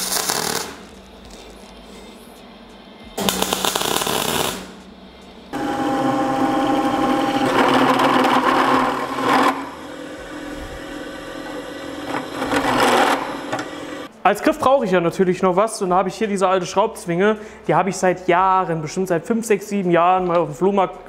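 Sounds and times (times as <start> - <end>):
welding crackle: 0.0 - 1.8, 3.2 - 4.9
drill press whining and grinding: 5.6 - 14.1.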